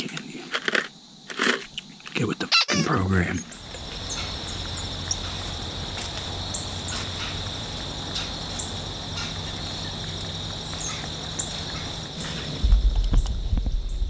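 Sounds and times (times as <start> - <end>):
insects droning and trilling: 0.0 - 14.0.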